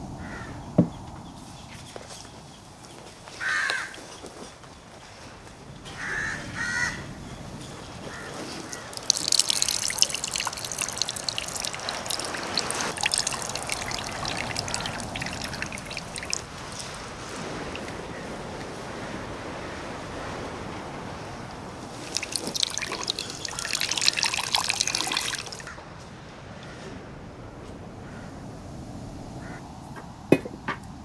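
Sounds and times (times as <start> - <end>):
crow cawing: 0.2 - 0.6, 3.4 - 4.0, 6.0 - 7.0, 29.4 - 29.6
coconut milk trickling into bowl: 8.4 - 17.9, 22.0 - 25.7.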